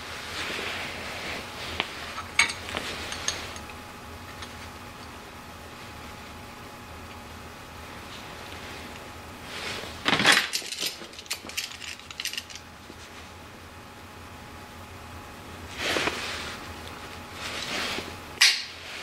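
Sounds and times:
metal parts clinking: 0:10.2 - 0:12.6.

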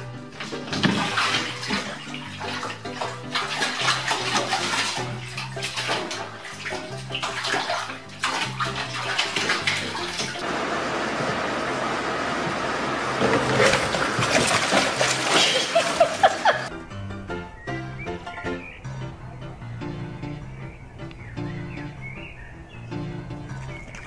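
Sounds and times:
music playing: 0:00.0 - 0:10.4, 0:14.4 - 0:24.0
cat splashing in water: 0:00.0 - 0:10.6, 0:13.1 - 0:16.7, 0:23.4 - 0:24.0.

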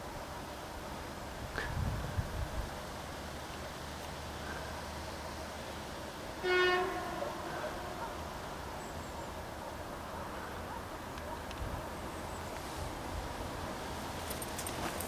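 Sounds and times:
diesel locomotive horn toot: 0:06.4 - 0:08.0.

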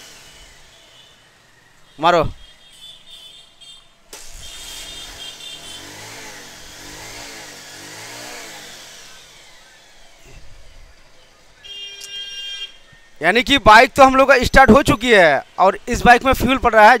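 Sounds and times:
motorcycle engine starting and revving: 0:00.0 - 0:01.6, 0:04.1 - 0:11.3.

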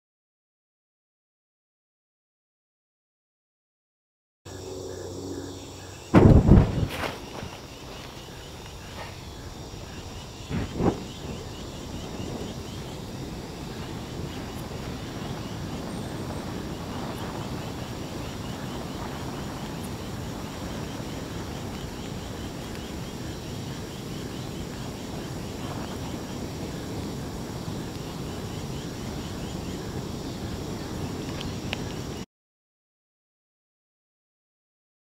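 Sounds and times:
flames burning with low rush: 0:06.0 - 0:32.2.

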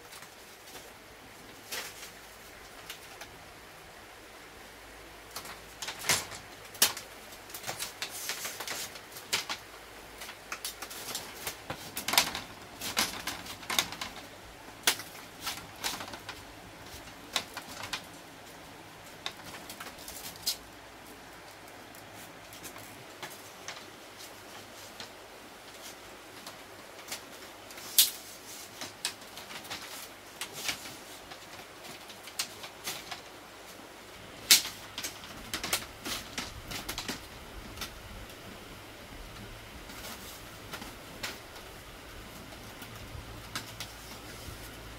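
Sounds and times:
bamboo strips clicking and rattling: 0:00.0 - 0:03.4, 0:05.2 - 0:38.5, 0:39.3 - 0:44.9.

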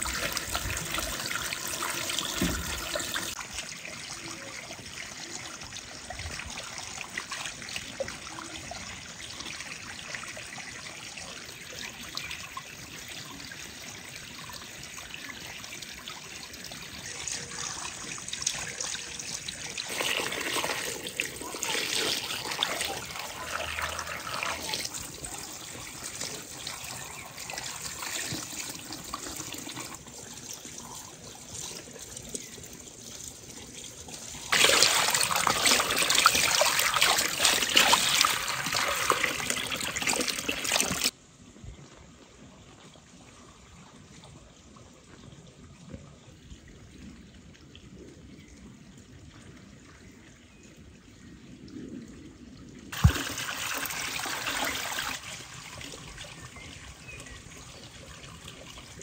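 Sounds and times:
water pouring into metal basin: 0:00.0 - 0:10.9, 0:14.1 - 0:41.2, 0:52.9 - 0:59.0.

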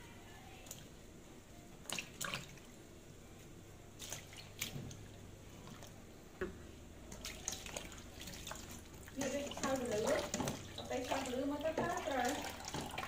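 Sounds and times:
water splashing in a bowl: 0:01.8 - 0:02.7, 0:04.0 - 0:04.9, 0:07.1 - 0:13.0.

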